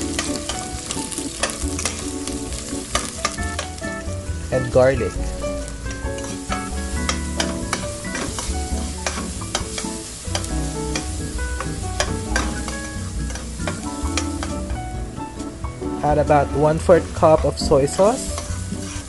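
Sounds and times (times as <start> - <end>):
background music with bass: 0.0 - 19.0
onions sizzling in hot oil: 0.0 - 19.0.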